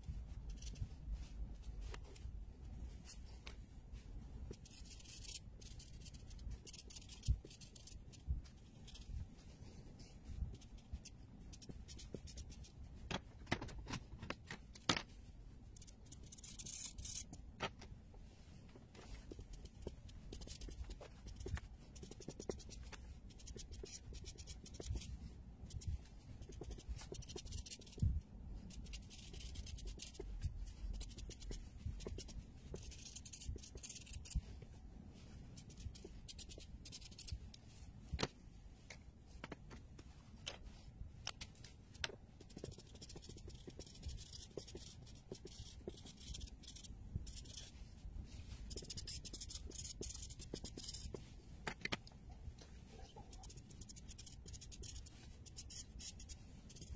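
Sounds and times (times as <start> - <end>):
marker scratching on paper: 0.0 - 2.3, 4.5 - 13.0, 15.7 - 17.4, 18.4 - 37.8, 42.0 - 51.4, 52.8 - 56.9.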